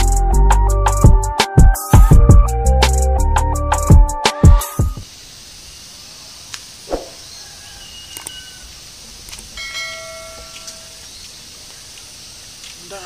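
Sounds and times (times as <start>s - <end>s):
music: 0.0s - 5.0s
faint steady hiss: 5.0s - 13.0s
short low thud: 6.9s - 7.2s
click: 8.2s - 8.4s.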